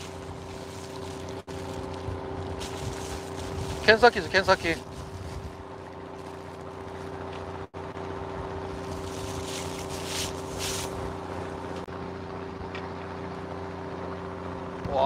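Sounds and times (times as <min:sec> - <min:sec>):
hissing rustles: 0:00.0 - 0:07.2, 0:08.8 - 0:11.2
boat motor droning: 0:00.0 - 0:15.0.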